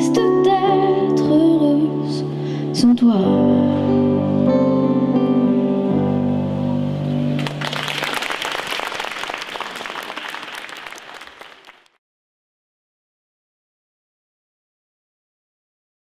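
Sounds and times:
piano and guitar chord: 0.0 - 7.6
audience applauding: 7.4 - 12.0.

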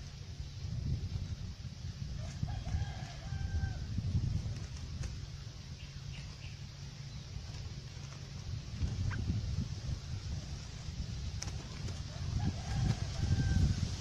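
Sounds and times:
steady low rumble: 0.0 - 14.0
rooster crowing: 2.2 - 3.9, 12.1 - 14.0.

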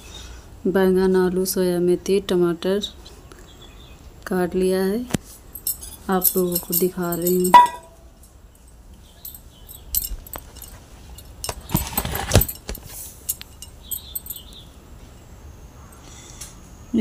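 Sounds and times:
clinks of steel bowls: 5.6 - 12.7, 13.3 - 14.5
rustle and bump: 8.6 - 14.5.

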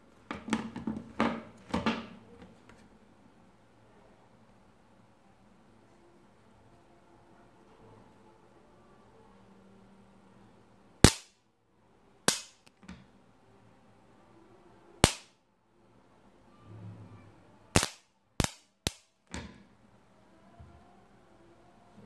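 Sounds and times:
electrical sparks snapping: 11.0 - 11.3, 12.3 - 12.7, 15.0 - 15.3, 17.8 - 19.1.

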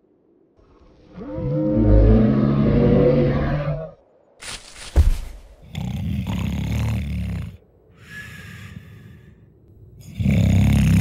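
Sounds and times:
cartoon dinosaur snoring: 5.6 - 7.6, 10.0 - 11.0
breath in with whistle: 8.0 - 9.2.

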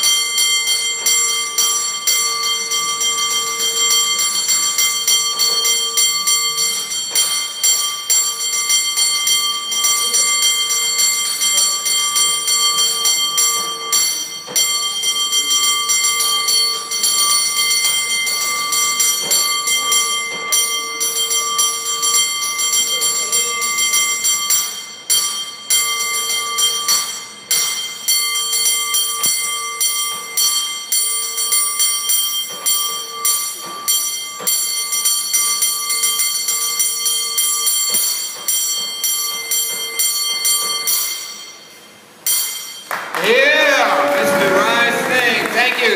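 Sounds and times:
cable car bell ringing rhythmically: 0.0 - 45.9.

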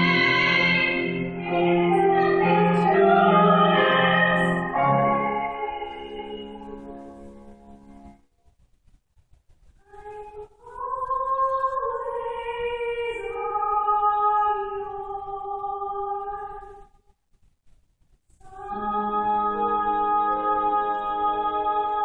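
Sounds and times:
woman singing classical style: 0.0 - 6.8, 9.8 - 16.8, 18.4 - 22.0.

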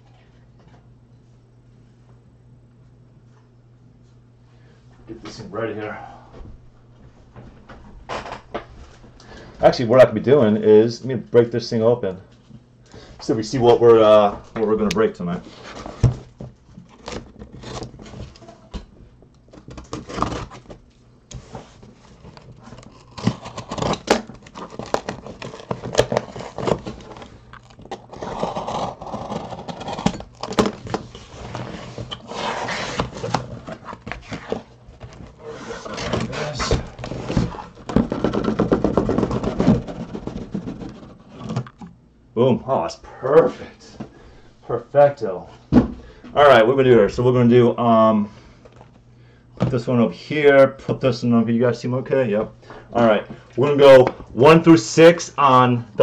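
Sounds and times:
cardboard scraping and rustling: 14.2 - 18.7, 19.5 - 41.8
packing tape being slit: 19.6 - 21.4, 22.1 - 34.6.

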